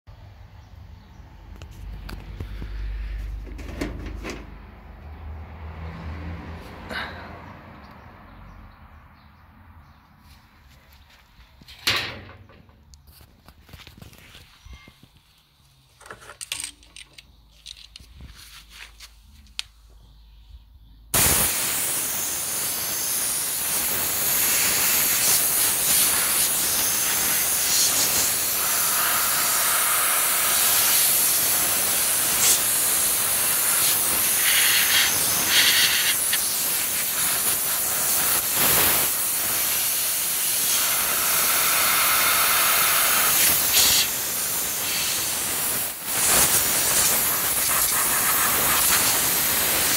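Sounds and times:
compressed air hissing from blow gun: 0:21.2 - 0:49.9.

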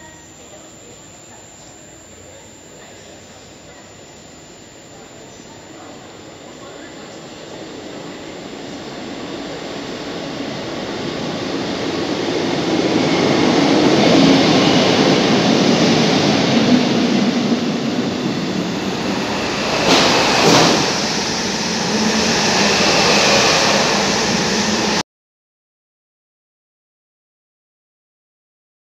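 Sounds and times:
diesel train passing: 0:05.8 - 0:25.0.

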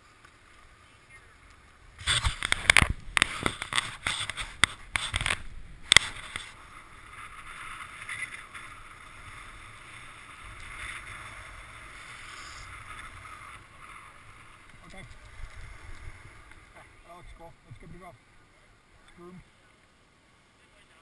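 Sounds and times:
skis scraping on snow: 0:02.0 - 0:17.0.

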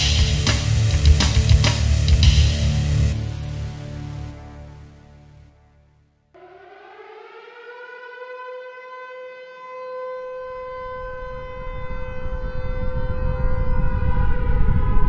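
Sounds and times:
siren wailing: 0:06.4 - 0:15.0
low rumble: 0:10.9 - 0:15.0.

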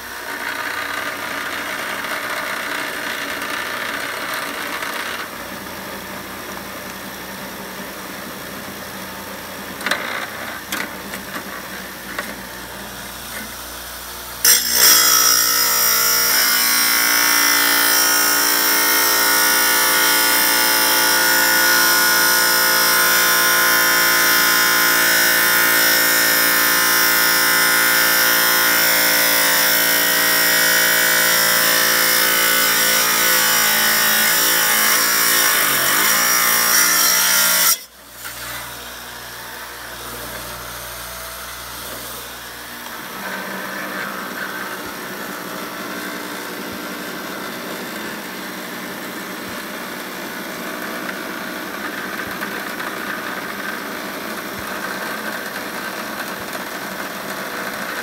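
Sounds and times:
saw blade grinding whine: 0:00.0 - 0:07.2, 0:07.8 - 0:58.0
tile saw running: 0:00.0 - 0:58.0.

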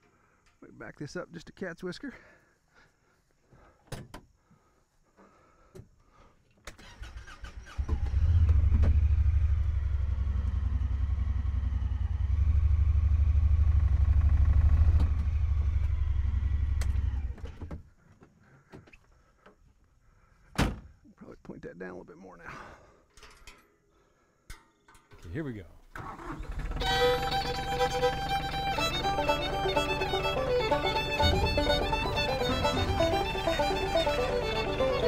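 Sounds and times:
utility vehicle engine running: 0:07.2 - 0:17.5, 0:26.0 - 0:35.0.

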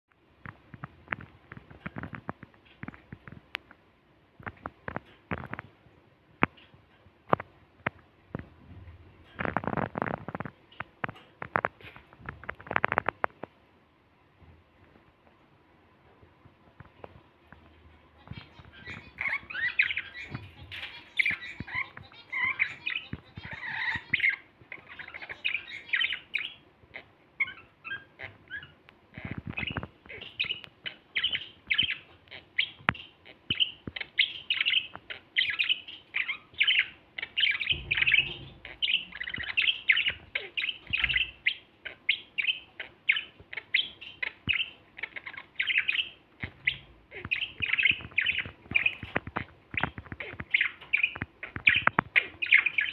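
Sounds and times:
budgerigars warbling: 0:18.3 - 0:52.9.

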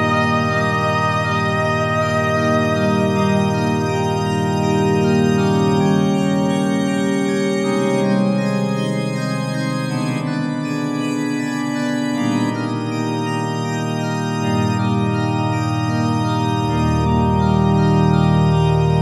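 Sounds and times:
organ chords: 0:00.0 - 0:19.0.

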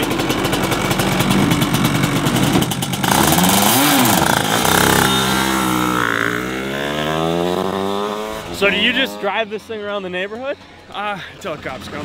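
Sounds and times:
kart engine popping and revving: 0:00.0 - 0:09.4.

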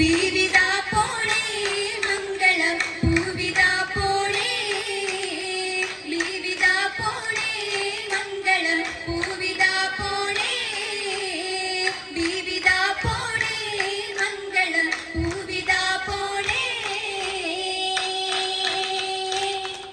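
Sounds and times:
sharp hand claps: 0:00.0 - 0:19.9
women singing amplified: 0:00.0 - 0:19.9.

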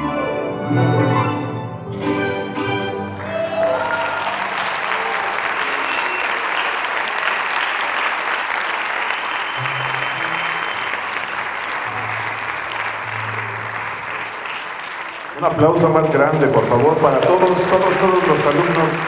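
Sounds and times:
string ensemble playing: 0:00.0 - 0:03.6, 0:09.6 - 0:14.4, 0:15.4 - 0:19.0
audience applauding: 0:03.1 - 0:19.0.

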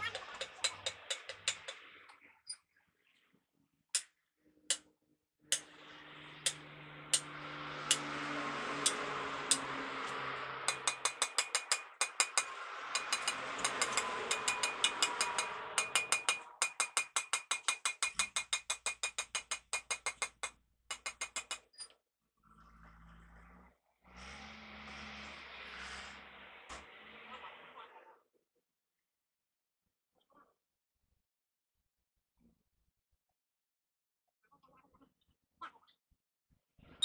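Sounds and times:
hammer blows ringing on metal: 0:06.4 - 0:21.6
rapid metallic clicks: 0:08.8 - 0:21.8.

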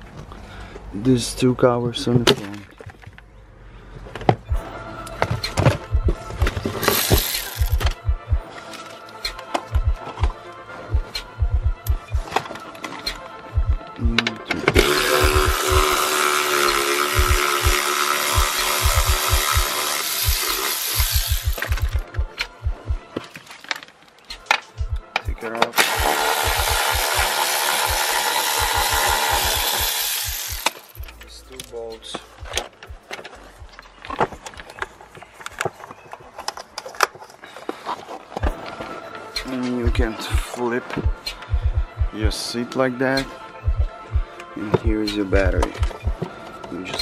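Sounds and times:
low thumps: 0:05.3 - 0:06.8, 0:07.6 - 0:08.5, 0:09.7 - 0:12.4, 0:13.6 - 0:15.9, 0:21.0 - 0:23.2, 0:24.8 - 0:25.4, 0:41.0 - 0:42.4, 0:43.7 - 0:44.3, 0:45.3 - 0:46.3
electric ratchet whirring: 0:06.8 - 0:08.0, 0:14.8 - 0:22.1, 0:25.8 - 0:31.1
plastic trim and tools clicking: 0:14.3 - 0:22.0
sharp clicks: 0:18.4 - 0:22.6.

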